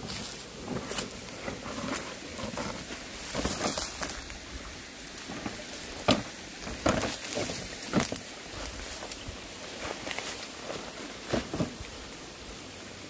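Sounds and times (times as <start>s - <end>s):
dry leaves crackling and rustling: 0.0s - 12.2s
twigs snapping: 3.2s - 4.4s.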